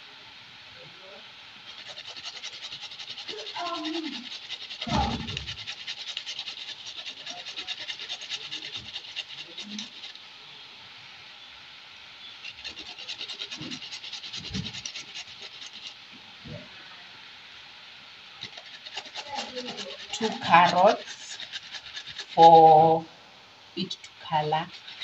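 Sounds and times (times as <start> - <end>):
carrot grating on metal grater: 1.7 - 10.2, 12.4 - 16.0, 18.4 - 22.9, 23.8 - 25.0.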